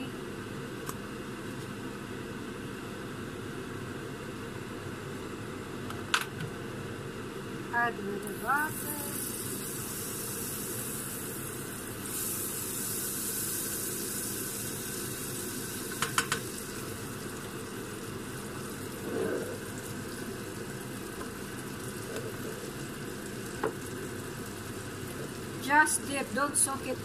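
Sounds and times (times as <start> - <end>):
butter sizzling in frying pan: 8.3 - 19.0, 19.6 - 26.9.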